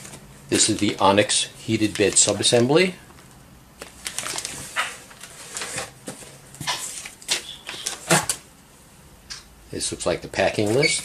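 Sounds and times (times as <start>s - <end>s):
plastic bags crinkling: 0.1s - 8.4s.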